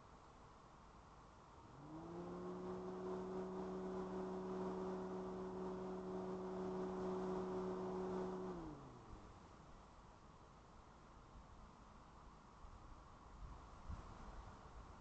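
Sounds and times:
motor hum: 0:01.6 - 0:09.7.

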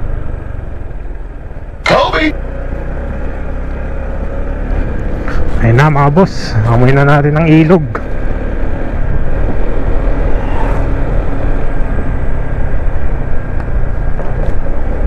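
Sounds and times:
motorcycle engine running: 0:00.0 - 0:15.0
wind rush on microphone: 0:08.6 - 0:15.0.

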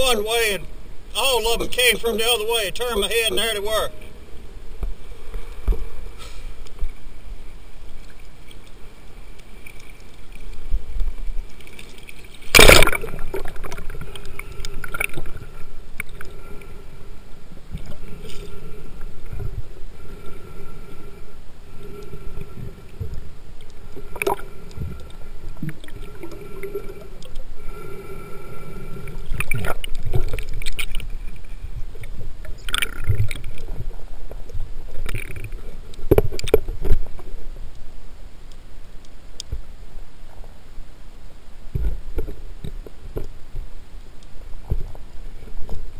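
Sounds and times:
water sloshing and gurgling: 0:00.0 - 0:40.6
loud splash: 0:12.4 - 0:13.8.

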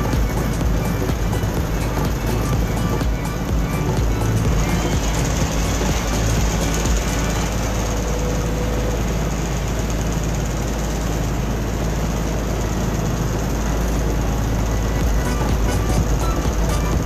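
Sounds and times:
boat engine humming: 0:00.0 - 0:17.0.

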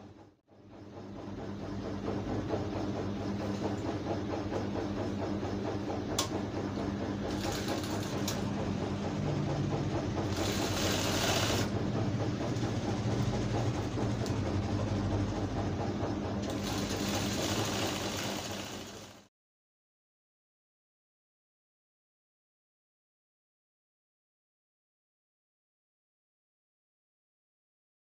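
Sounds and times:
sewing machine running: 0:03.1 - 0:19.3.

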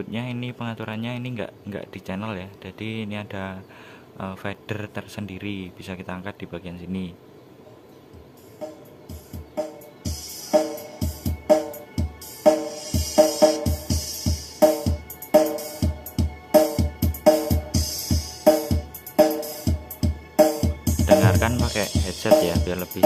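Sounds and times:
music with steady drum beat: 0:08.2 - 0:23.0.

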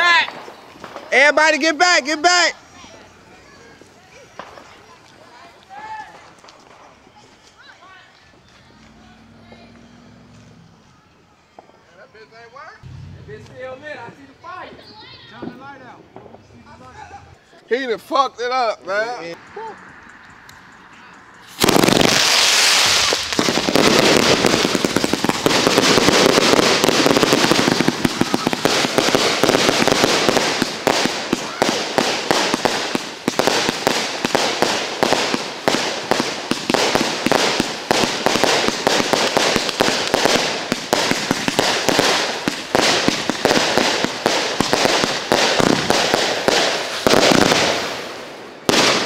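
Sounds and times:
firework cake launches and bangs: 0:21.5 - 0:49.0.

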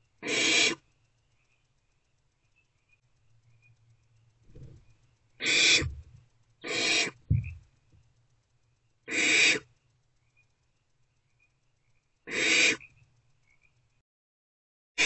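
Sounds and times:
owlets hissing: 0:05.4 - 0:06.0
short low thump: 0:07.3 - 0:07.6.

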